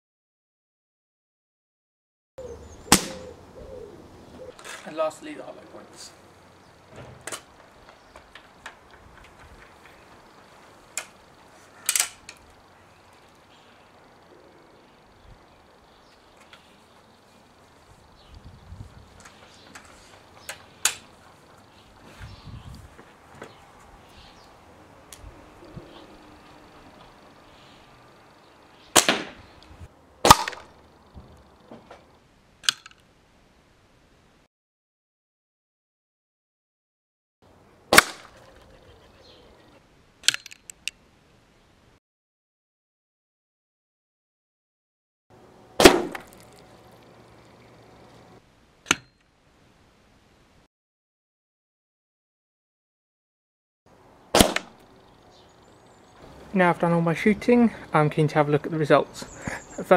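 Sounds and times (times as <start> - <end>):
air rifle shots: 2.9 - 3.3, 28.9 - 29.4, 30.2 - 30.7, 37.9 - 38.4, 45.8 - 46.4, 54.3 - 54.8
air rifle mechanical clicks: 11.8 - 12.5, 32.6 - 33.1, 40.2 - 41.0.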